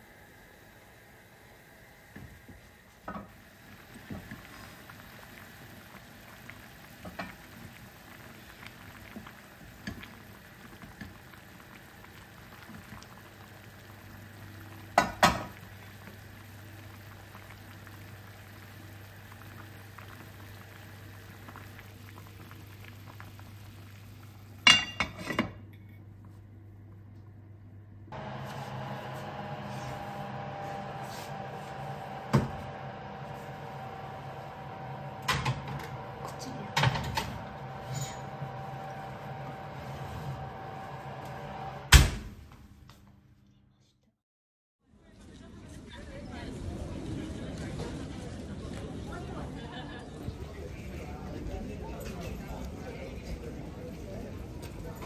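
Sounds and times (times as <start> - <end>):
pot bubbling and hissing: 0.0 - 25.4, 28.1 - 41.9.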